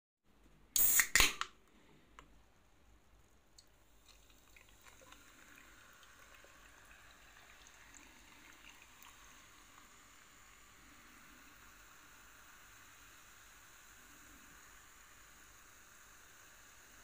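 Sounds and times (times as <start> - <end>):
can opening with hiss: 0.8 - 1.6
cola fizzing pour over ice: 3.6 - 17.0.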